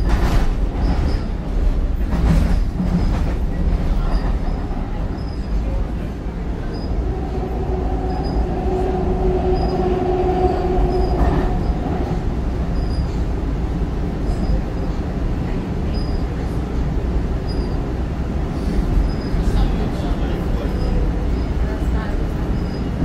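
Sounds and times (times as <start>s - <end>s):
train car running noise: 0.0s - 23.0s
whining tone: 6.7s - 13.1s.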